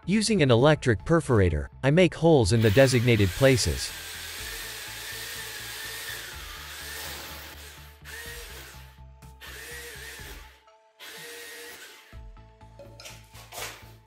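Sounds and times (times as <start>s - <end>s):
background music: 0.0s - 14.0s
rotary hammer drilling into wall: 2.6s - 12.2s.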